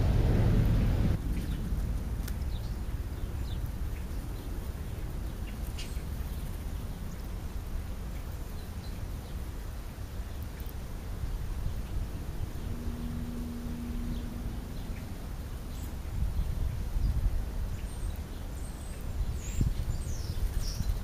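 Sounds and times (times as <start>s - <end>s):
low rumble: 0.0s - 5.4s, 11.6s - 17.3s.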